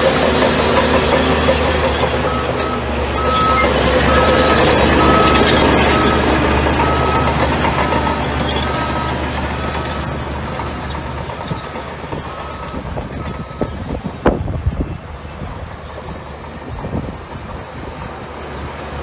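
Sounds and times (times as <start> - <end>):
bulldozer diesel engine running: 0.0 - 19.0
reversing alarm beeping: 2.0 - 14.4.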